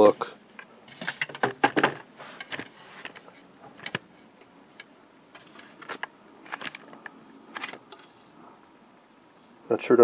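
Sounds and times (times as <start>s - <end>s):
handling clicks and rustle: 0.5s - 8.2s.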